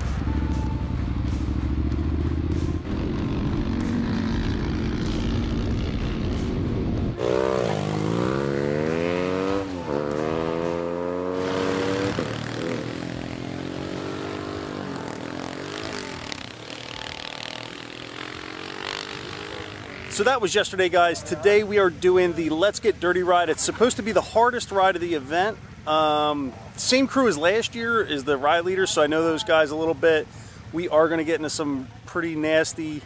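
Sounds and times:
motorcycle engine revving: 0.0 - 20.4.

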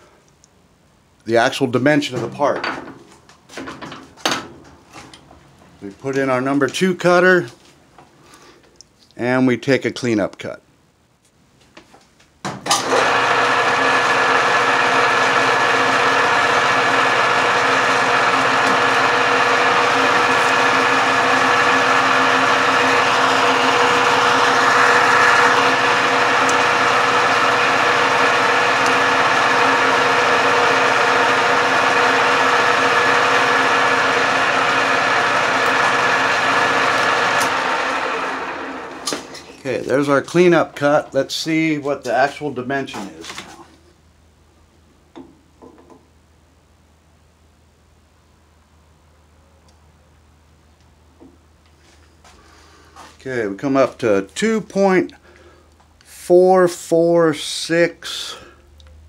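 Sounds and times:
metal lathe whining: 12.8 - 39.6.

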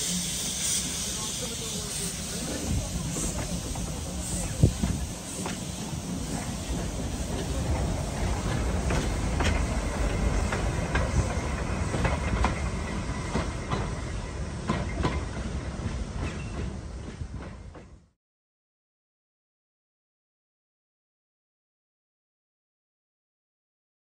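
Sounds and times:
train carriages rumbling: 0.0 - 18.1.

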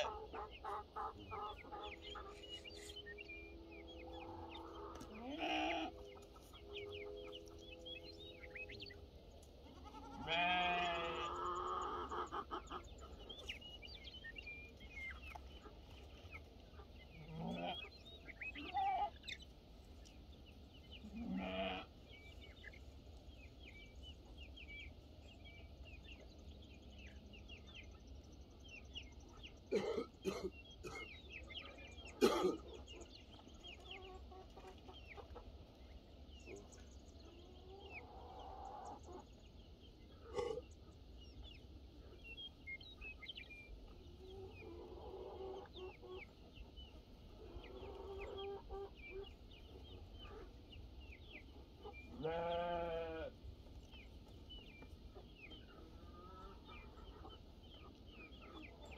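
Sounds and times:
chickens clucking: 0.0 - 58.9
animal bleating: 5.0 - 6.0, 9.6 - 11.8, 17.2 - 17.9, 21.0 - 21.9, 52.1 - 53.3.

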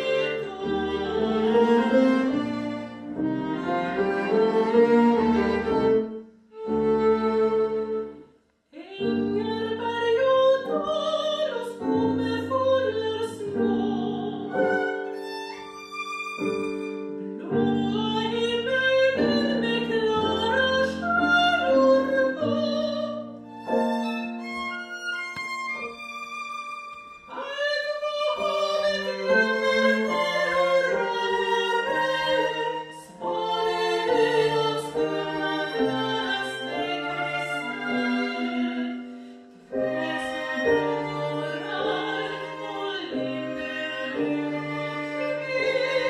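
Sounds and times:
viola cello and piano: 0.0 - 8.3, 8.9 - 46.0
soprano singing: 0.0 - 46.0.

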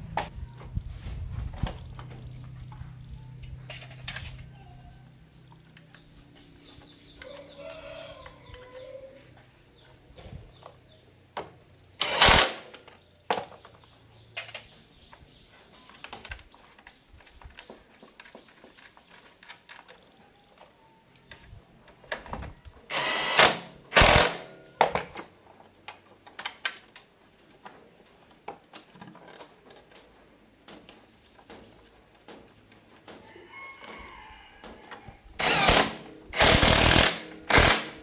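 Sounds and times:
impact driver burst: 12.0 - 12.8, 22.9 - 24.6, 35.4 - 38.0.

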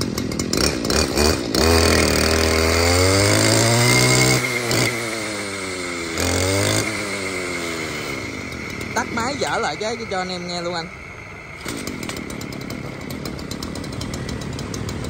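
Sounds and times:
brush cutter engine revving: 0.0 - 15.0.

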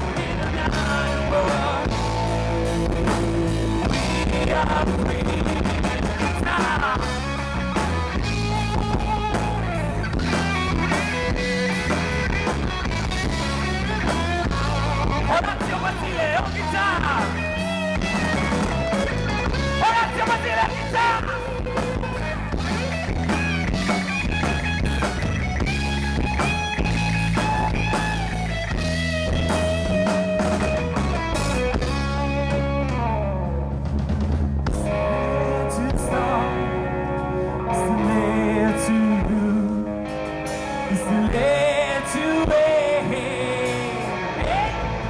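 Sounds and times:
bass: 0.0 - 45.0
drums: 0.0 - 45.0
electric guitar lead: 0.0 - 45.0.

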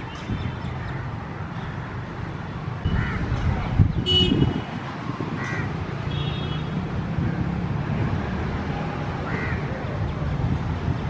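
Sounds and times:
crow cawing: 5.4 - 5.7, 9.2 - 9.7.

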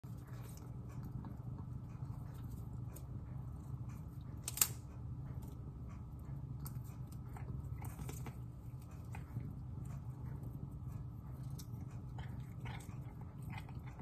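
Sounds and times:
cat chewing and crunching: 0.0 - 14.0
low hum: 0.0 - 14.0.

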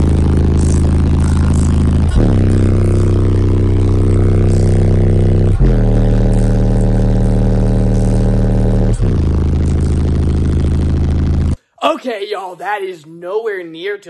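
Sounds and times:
subwoofers playing deep bass notes: 0.0 - 11.6.

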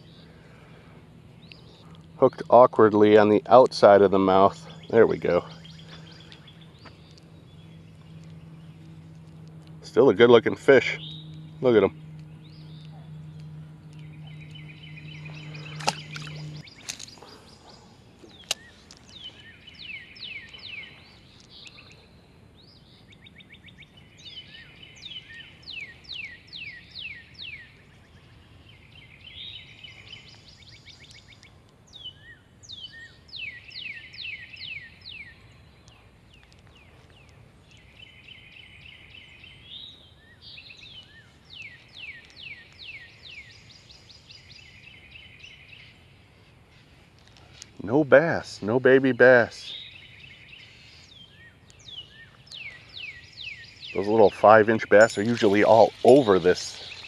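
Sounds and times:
low steady hum: 0.0 - 57.0
songbirds singing: 0.0 - 57.0
sharp clicks: 10.4 - 17.4.

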